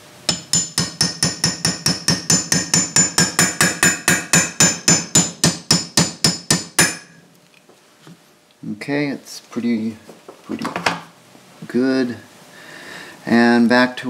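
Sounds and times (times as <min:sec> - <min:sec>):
small hammer tapping metal: 0:00.3 - 0:07.2.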